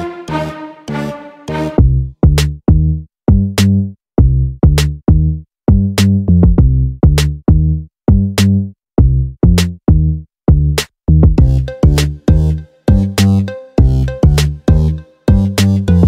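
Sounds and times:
electronic music with drum-machine beat: 11.3s - 16.0s.

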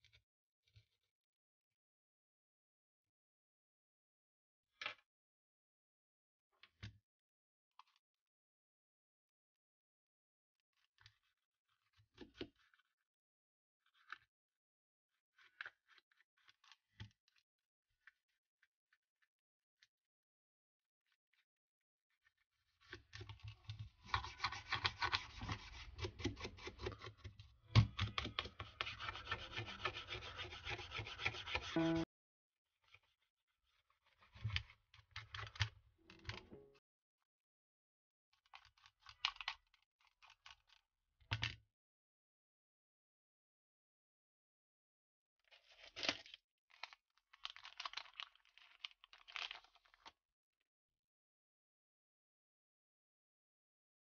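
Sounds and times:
scraping and rubbing on smartphone: 23.8s - 27.2s, 28.5s - 32.1s
crinkling handling noises: 45.5s - 50.2s.

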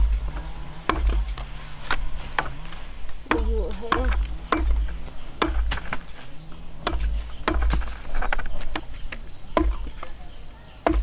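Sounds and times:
machete chopping stems on block: 0.0s - 10.2s, 10.8s - 11.0s.

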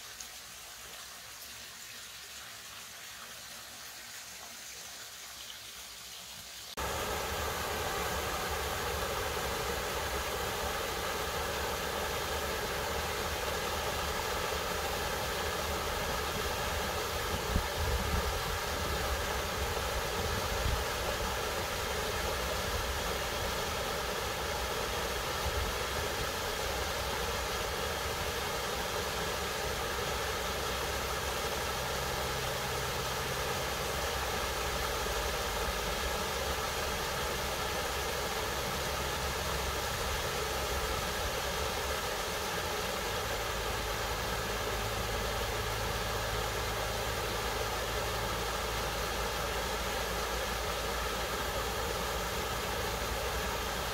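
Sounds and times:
waterfall and stream rushing: 0.0s - 53.9s.

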